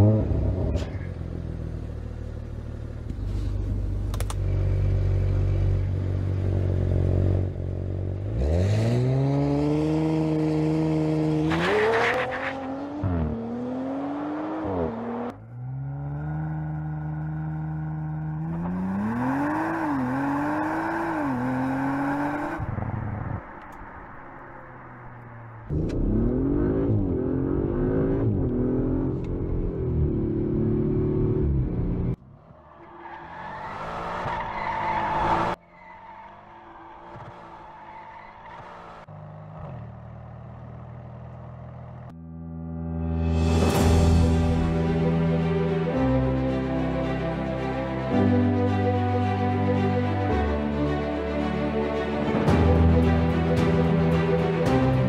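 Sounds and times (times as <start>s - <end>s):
car engine accelerating: 0.0s - 42.2s.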